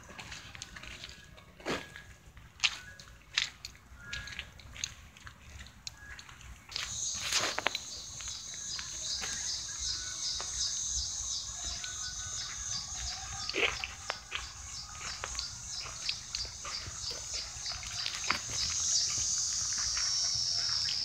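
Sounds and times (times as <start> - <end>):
footsteps on gravel: 0.0 - 21.0
high-pitched chirping: 6.8 - 21.0.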